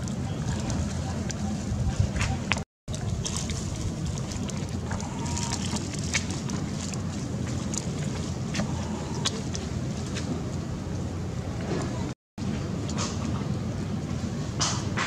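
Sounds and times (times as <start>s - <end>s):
wind on microphone: 0.0s - 7.4s
outdoor ambience: 0.0s - 15.0s.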